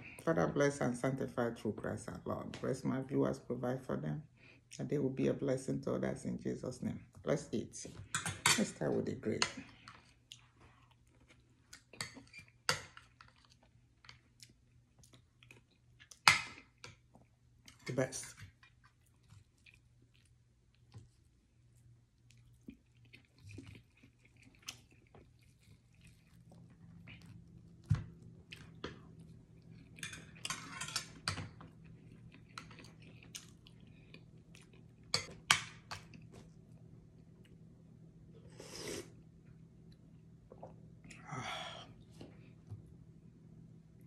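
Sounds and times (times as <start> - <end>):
close chewing: 18.6 - 30.0.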